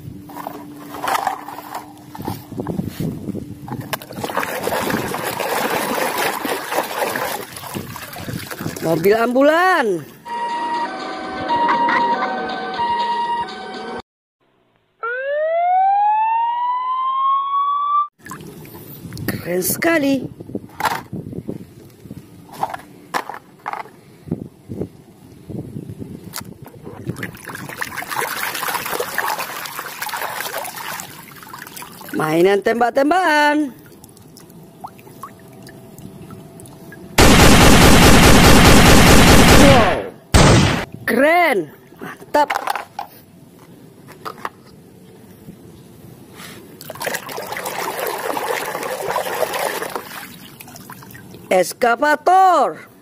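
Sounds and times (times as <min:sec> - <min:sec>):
water splashing in a plastic basin: 0:03.7 - 0:09.2, 0:18.2 - 0:18.8, 0:26.4 - 0:32.4, 0:46.8 - 0:51.5.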